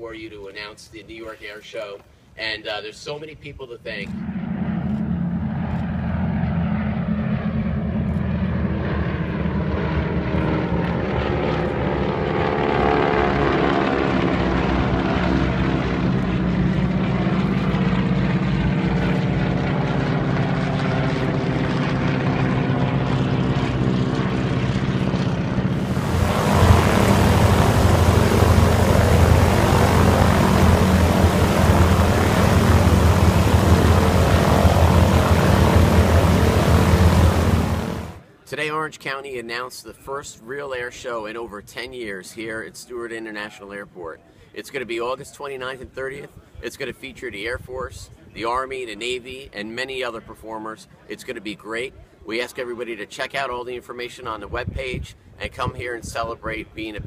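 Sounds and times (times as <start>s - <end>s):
propeller planes flying overhead: 3.9s - 38.3s
plane engines running on ground: 4.0s - 38.2s.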